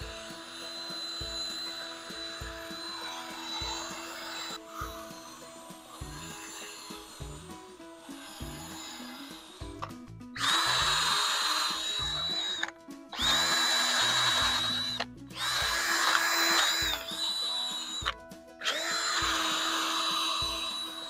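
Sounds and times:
background music: 0.0 - 21.0
drill whining against metal: 0.0 - 21.0.

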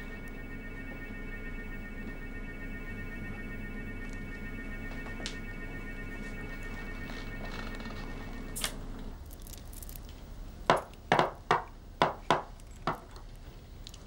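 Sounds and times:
steady hum with held tones: 0.0 - 14.0.

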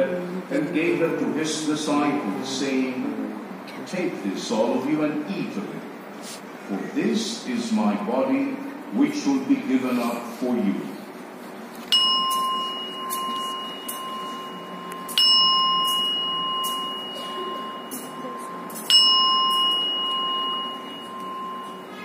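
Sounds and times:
altar bells ringing: 11.9 - 22.0.

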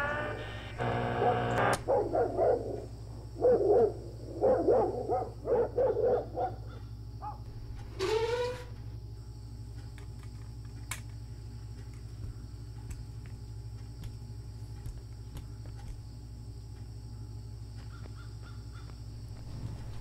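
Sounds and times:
low steady hum: 0.0 - 8.0, 8.6 - 20.0
dog barking: 1.2 - 7.5.

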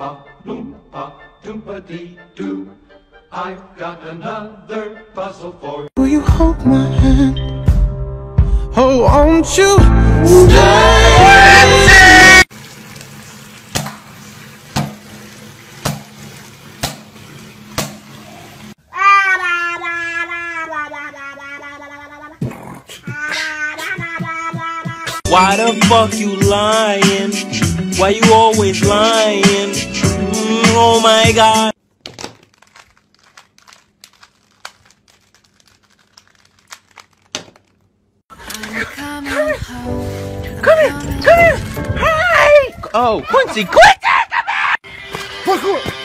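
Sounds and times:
puzzle cube plastic clicks: 32.1 - 37.8.

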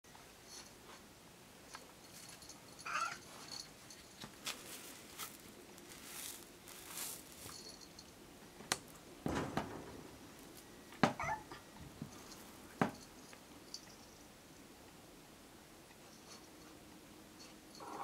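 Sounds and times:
cat meowing: 2.8 - 3.2, 11.2 - 11.6
rustling thump: 9.2 - 11.2.

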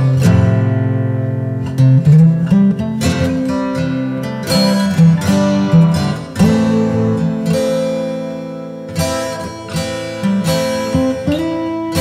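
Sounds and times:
plucked string chords: 0.0 - 12.0.

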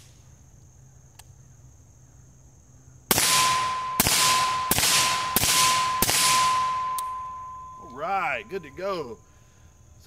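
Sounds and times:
suppressed rifle shots: 3.1 - 7.2
steel target ringing: 3.2 - 9.2.

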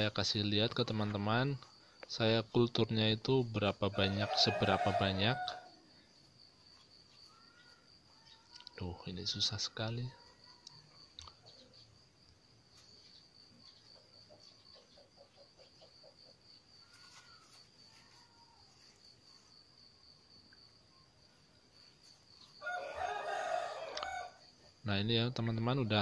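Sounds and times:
rooster crowing: 3.9 - 6.0, 22.4 - 24.5.

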